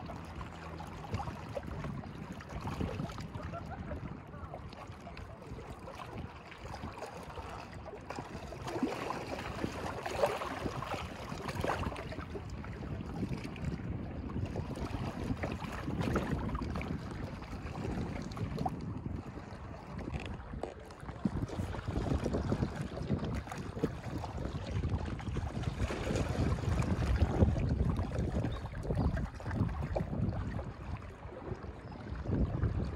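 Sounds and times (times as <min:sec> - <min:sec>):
waves lapping against rocks: 0:00.0 - 0:32.9
wind buffeting microphone: 0:00.0 - 0:32.9.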